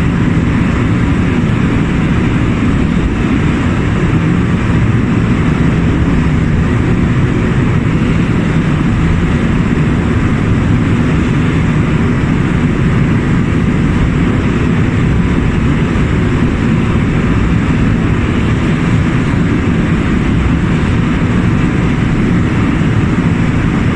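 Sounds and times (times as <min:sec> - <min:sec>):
churned water rushing: 0:00.0 - 0:23.9
motor boat engine rumble: 0:00.0 - 0:23.9.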